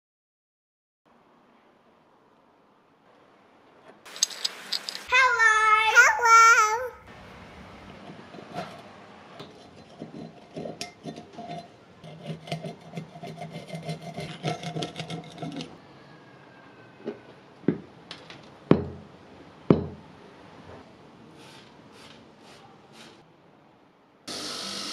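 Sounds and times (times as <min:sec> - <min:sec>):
screwdriver scraping rust off metal: 0:04.1 - 0:05.1.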